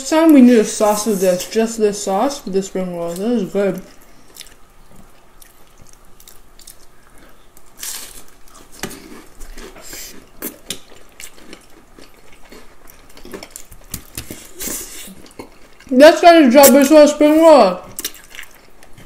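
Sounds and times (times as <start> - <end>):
wet chewing and slurping: 3.8 - 15.9, 17.9 - 19.0.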